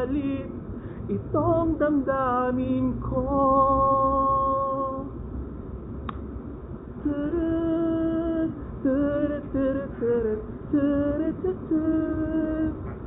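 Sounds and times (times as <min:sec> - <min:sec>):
person singing long notes: 0:07.0 - 0:12.8.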